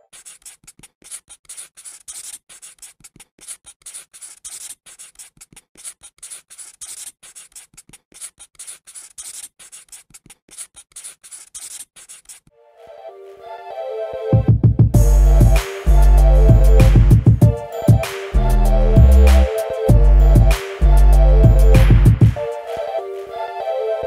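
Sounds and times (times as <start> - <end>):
marker scratching on paper: 0.0 - 12.5.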